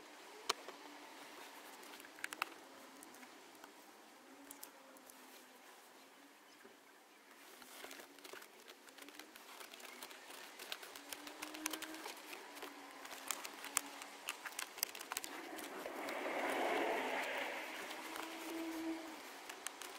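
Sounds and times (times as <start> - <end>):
hands rustling: 7.4 - 19.9.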